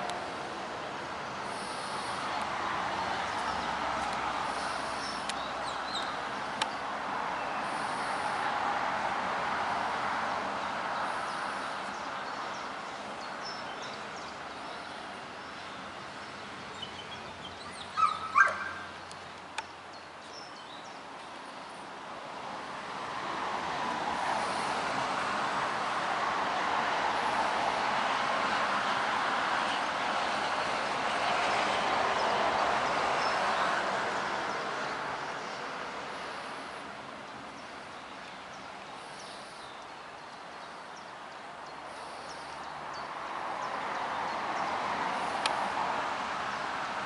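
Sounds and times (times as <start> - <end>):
steady background hiss: 0.0 - 23.0
dog barking: 18.0 - 18.8.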